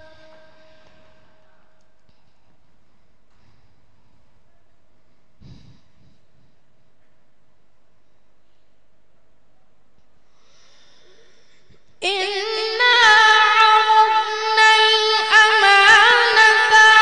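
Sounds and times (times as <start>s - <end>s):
boy reciting melodically into microphone: 0.0s - 1.8s, 12.0s - 17.0s
faint intake of breath: 2.1s - 7.0s, 10.2s - 12.0s.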